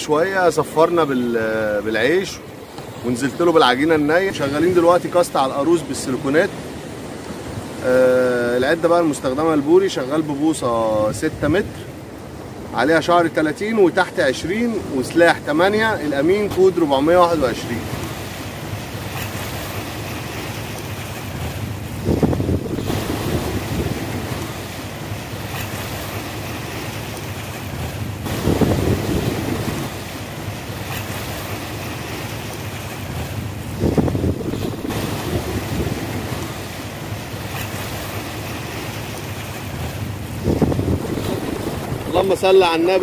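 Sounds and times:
sea waves washing onto shore: 0.0 - 43.0
wind buffeting microphone: 21.2 - 26.2, 27.6 - 31.6, 33.0 - 38.2, 39.6 - 43.0.

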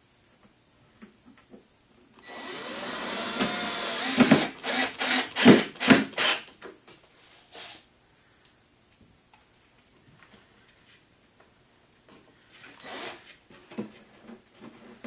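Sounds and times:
cordless drill driving screw: 2.2 - 6.4, 12.8 - 13.2.

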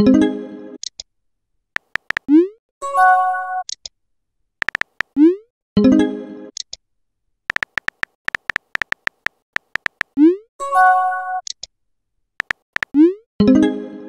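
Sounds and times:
keyboard tap clicks: 1.8 - 2.3, 4.6 - 5.2, 7.5 - 10.2, 12.4 - 13.0.

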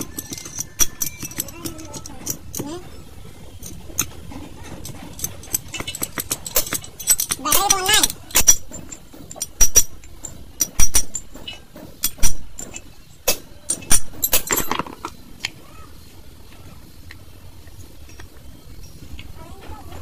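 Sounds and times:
metallic clinks of steel tools: 0.0 - 3.0, 3.6 - 14.9.

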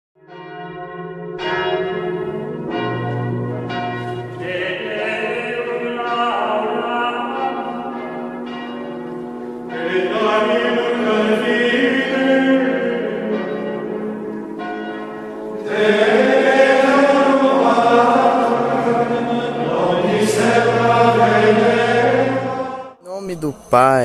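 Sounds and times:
church bells ringing: 0.2 - 24.0
choral chant: 4.3 - 7.9, 9.7 - 13.4, 15.6 - 24.0.

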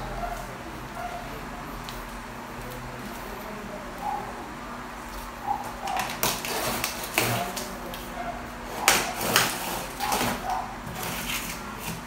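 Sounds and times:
cardboard box scraping on floor: 9.2 - 12.0.

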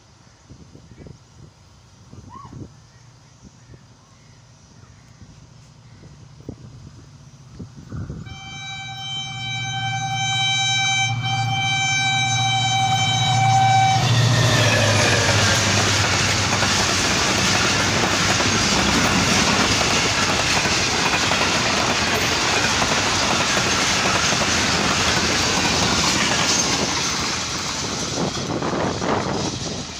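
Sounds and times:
train wheels clattering: 12.4 - 29.9.

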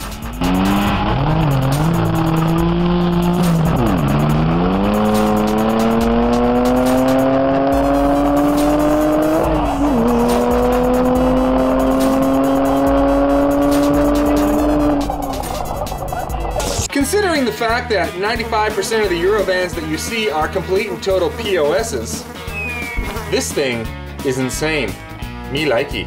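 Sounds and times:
van engine accelerating hard: 0.0 - 16.9.

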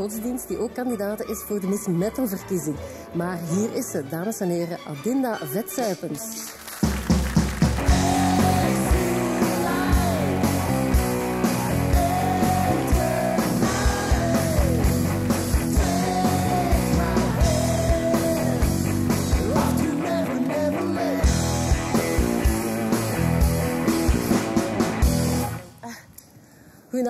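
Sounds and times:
loud rock music: 7.4 - 25.7.

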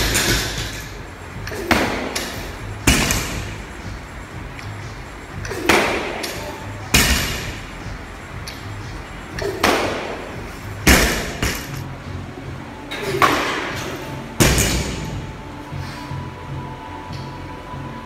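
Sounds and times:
barbell thudding on gym floor: 0.0 - 3.7, 5.4 - 7.8, 9.4 - 11.8, 14.4 - 15.2.

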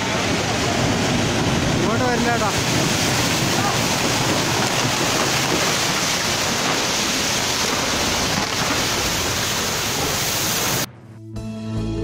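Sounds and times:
rushing mud and floodwater: 0.0 - 10.9.

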